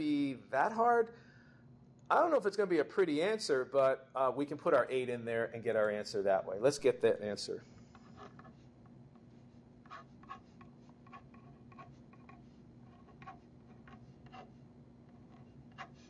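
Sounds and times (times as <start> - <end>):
pen scratching on paper: 7.9 - 16.0.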